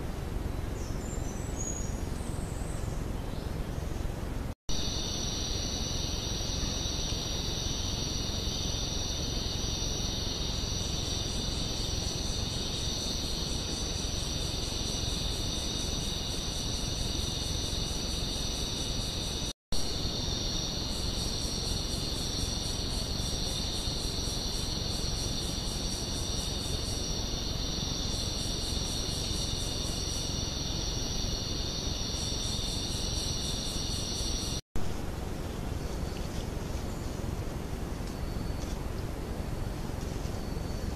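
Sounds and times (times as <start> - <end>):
microphone hiss: 0.0 - 40.9
insect pulsing trill: 4.7 - 34.6.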